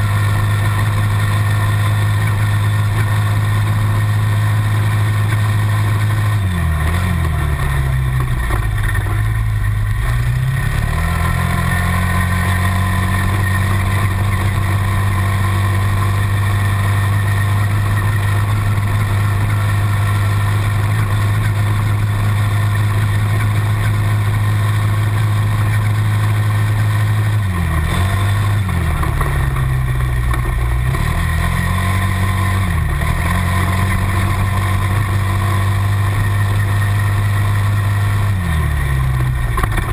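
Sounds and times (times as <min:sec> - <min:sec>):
quad bike engines revving: 0:00.0 - 0:39.9.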